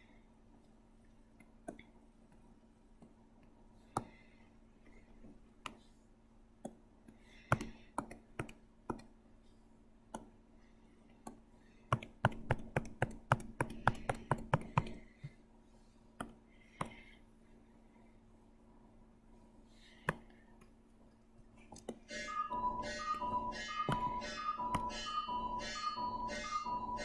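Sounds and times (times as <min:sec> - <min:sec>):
computer clicks and taps: 0:06.6 - 0:09.2, 0:10.1 - 0:10.3, 0:11.2 - 0:15.0, 0:23.1 - 0:25.0.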